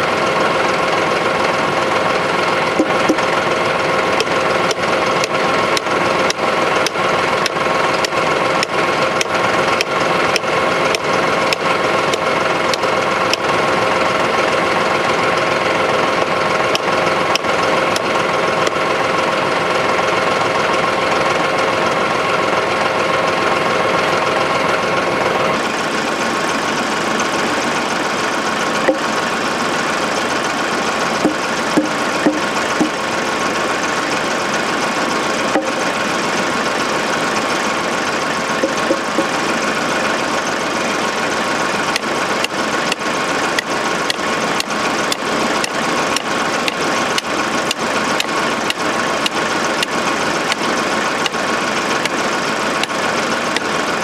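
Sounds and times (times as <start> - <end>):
tractor diesel engine idling: 0.0 - 54.0
hammer striking wooden post: 2.8 - 3.3, 28.9 - 29.2, 31.2 - 33.0, 35.6 - 36.0, 38.6 - 39.4.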